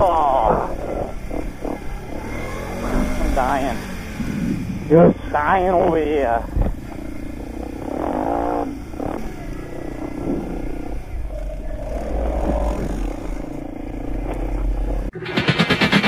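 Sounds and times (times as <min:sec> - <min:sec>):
wind buffeting microphone: 0:00.0 - 0:15.1
quad bike engine running: 0:00.0 - 0:15.2.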